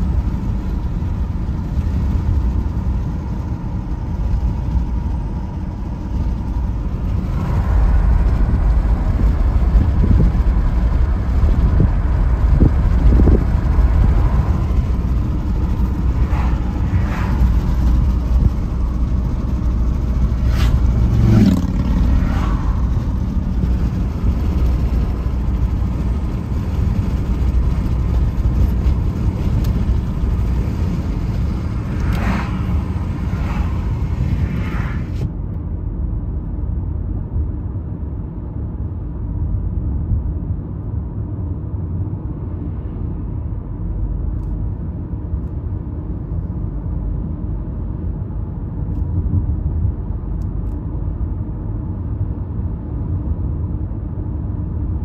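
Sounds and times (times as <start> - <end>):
car interior road rumble: 0.0 - 55.0
brief whooshes: 20.4 - 21.5, 32.0 - 35.3.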